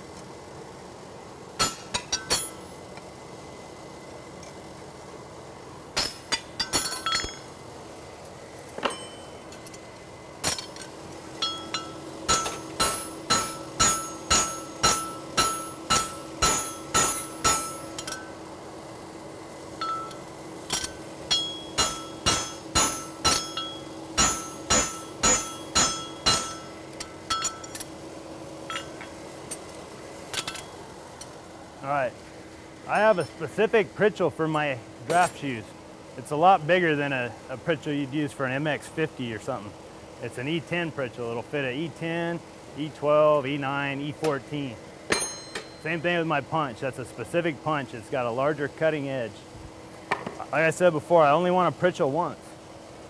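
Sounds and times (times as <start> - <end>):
hammer striking metal on anvil: 1.6 - 2.6, 6.0 - 7.5, 8.8 - 9.3, 11.4 - 18.3, 19.8 - 27.8, 28.7 - 29.1, 45.1 - 45.8.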